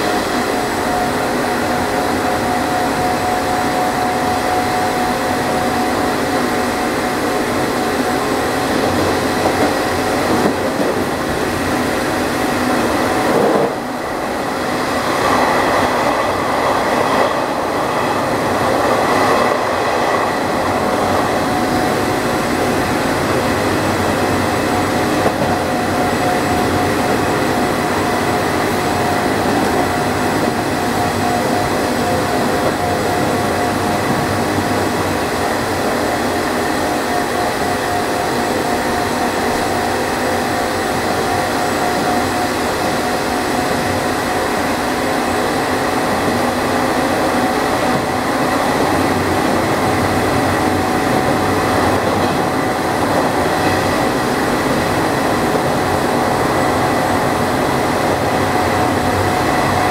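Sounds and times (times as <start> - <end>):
train motor whine: 0.0 - 59.9
wheels rumbling on rails: 0.0 - 59.9.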